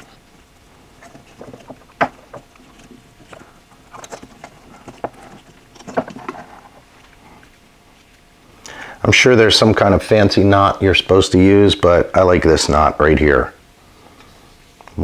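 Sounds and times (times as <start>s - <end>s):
cord rubbing: 0.9s - 8.1s.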